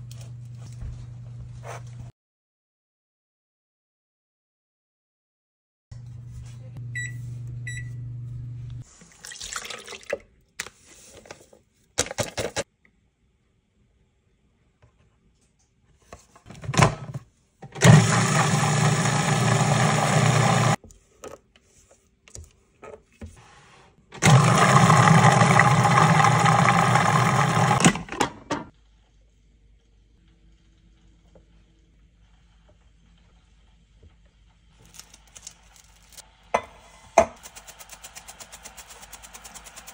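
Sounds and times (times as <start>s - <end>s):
food processor blending: 17.8s - 20.8s, 24.2s - 27.9s.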